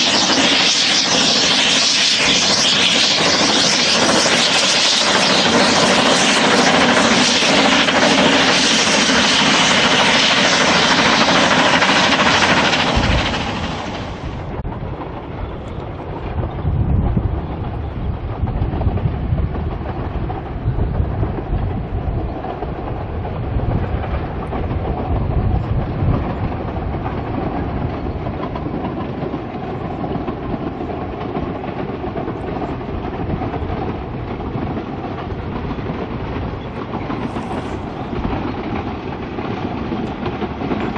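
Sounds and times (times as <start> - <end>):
steam locomotive exhaust hissing: 0.0 - 14.6, 28.7 - 40.9
steam locomotive chuffing: 0.0 - 16.6, 17.4 - 40.9
train wheels on rails: 0.0 - 40.9.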